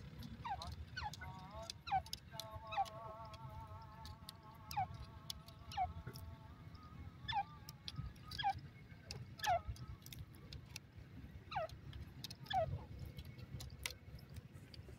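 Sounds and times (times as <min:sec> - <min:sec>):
sharp clicks: 0:00.0 - 0:06.8, 0:07.6 - 0:10.9.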